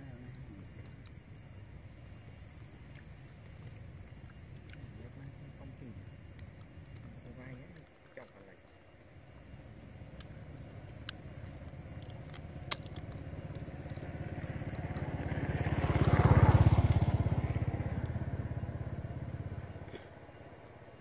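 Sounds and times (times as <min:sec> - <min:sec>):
motor vehicle passing: 0:09.1 - 0:21.0
sharp clicks: 0:10.0 - 0:18.2.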